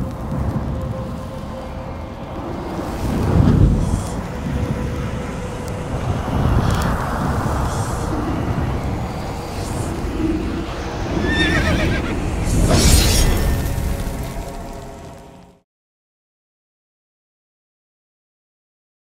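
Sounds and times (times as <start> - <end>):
low rumble: 0.0 - 15.6
horse neighing: 11.2 - 12.1.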